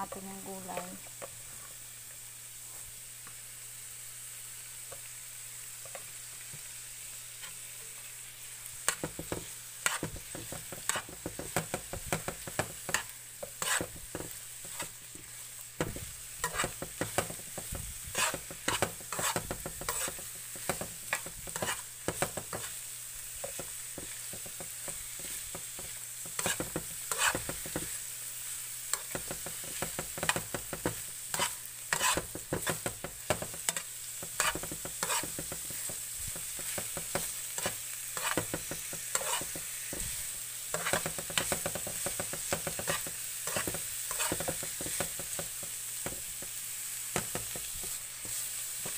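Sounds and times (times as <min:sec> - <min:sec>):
vegetables sizzling in frying pan: 0:00.0 - 0:48.9
utensil scraping a pan: 0:09.8 - 0:10.2, 0:12.9 - 0:15.0, 0:16.4 - 0:17.4, 0:18.1 - 0:22.7, 0:26.2 - 0:27.9, 0:31.3 - 0:32.9, 0:33.7 - 0:36.0, 0:36.6 - 0:45.1.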